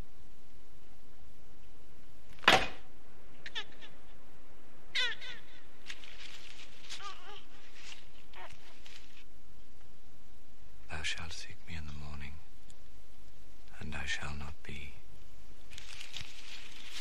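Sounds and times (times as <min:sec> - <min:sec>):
sharp knock: 0:02.4 - 0:02.8.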